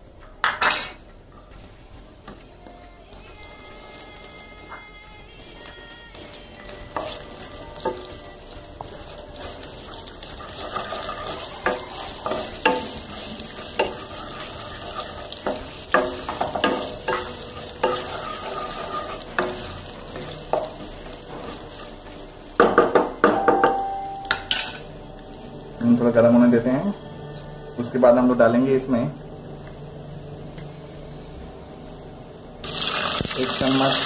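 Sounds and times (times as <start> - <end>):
spices sizzling in hot oil: 3.1 - 29.0, 32.6 - 34.0
spatula knocking against pan: 22.6 - 24.5.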